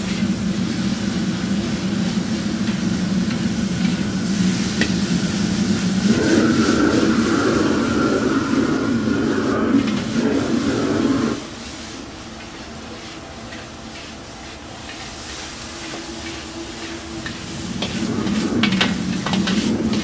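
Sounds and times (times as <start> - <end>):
gas burner rushing: 0.0 - 20.0
beef sizzling in a wok: 11.4 - 20.0.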